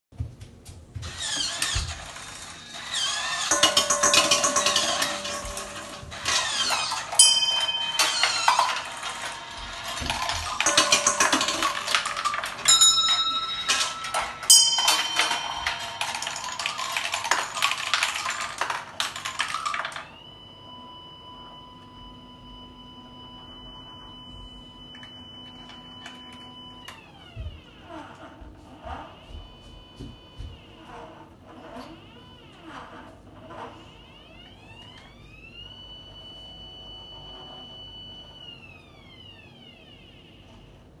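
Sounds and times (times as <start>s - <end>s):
marbles rattling through pipes: 1.2s - 20.1s
bell ringing: 3.2s - 19.9s.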